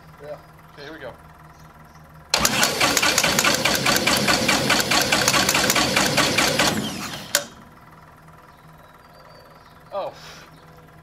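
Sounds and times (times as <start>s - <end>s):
starter cranking engine: 2.3s - 7.9s
sharp click: 4.6s - 7.6s.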